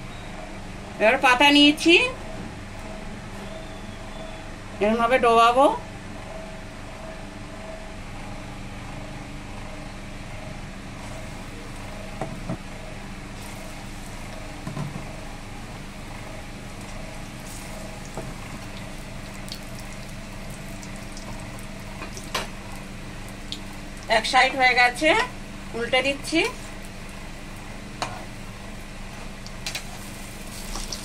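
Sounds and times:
constant electric hum: 0.0s - 31.0s
fritters sizzling in hot oil: 29.5s - 31.0s.

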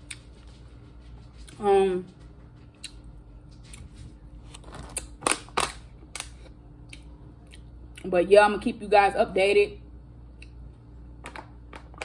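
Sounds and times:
sharp plastic cracks: 4.6s - 6.4s.

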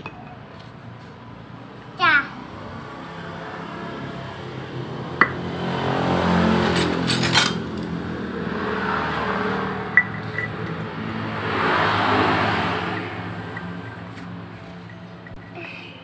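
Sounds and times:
metal pulley parts clinking: 6.7s - 7.9s.

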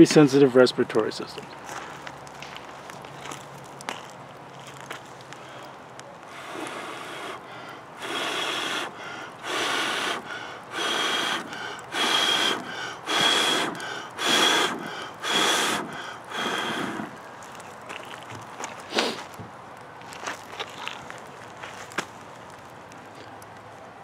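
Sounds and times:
person blowing on embers: 5.2s - 19.4s
quick in-breaths: 5.3s - 17.2s, 18.8s - 19.3s.

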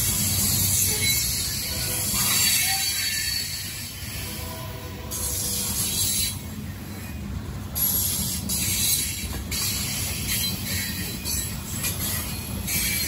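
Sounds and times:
train wheels rumbling on rail: 0.0s - 13.0s
hiss: 7.8s - 11.1s.

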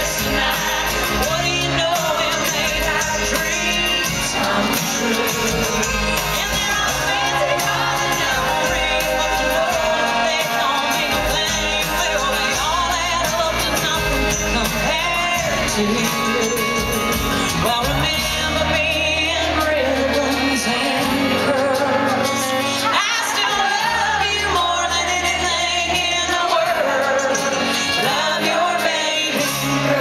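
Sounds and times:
crowd shouting: 0.0s - 14.2s
bass line: 0.0s - 22.4s
accordion: 0.0s - 30.0s
acoustic guitars: 0.0s - 30.0s
mandolin: 0.0s - 30.0s.

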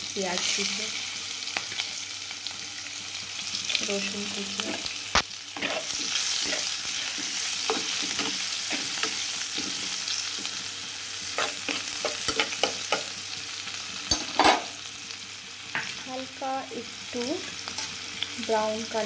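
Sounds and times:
food sizzling in hot oil: 0.0s - 19.0s
spoon knocking and scraping pan: 5.6s - 10.6s, 11.3s - 13.2s, 14.1s - 14.8s.

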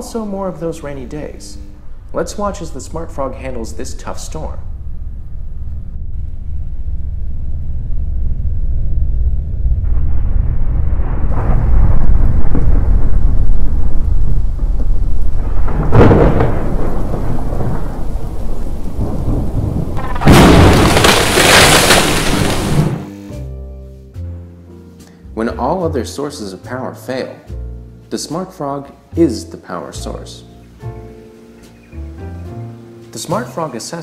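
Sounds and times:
rumble of thunder: 1.8s - 23.0s
loud crash of thunder: 4.4s - 23.1s
sharp thunderclap: 4.4s - 23.1s
rain: 9.9s - 23.1s.

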